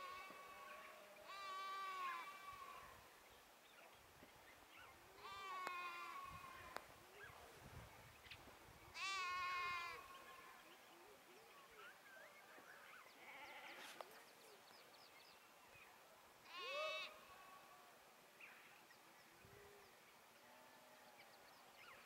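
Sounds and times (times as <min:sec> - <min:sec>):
sheep or goat bleating: 0:00.0 - 0:02.9, 0:05.2 - 0:06.8, 0:09.0 - 0:10.6, 0:13.2 - 0:14.0.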